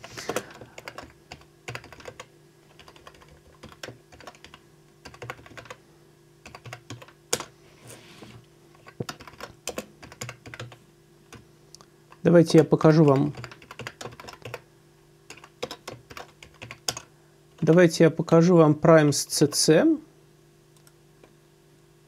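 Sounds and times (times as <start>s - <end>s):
faint steady hum: 0.0s - 22.0s
typing on computer keyboard: 0.3s - 5.8s, 6.4s - 7.5s, 8.8s - 11.4s, 13.0s - 14.6s, 15.3s - 17.7s.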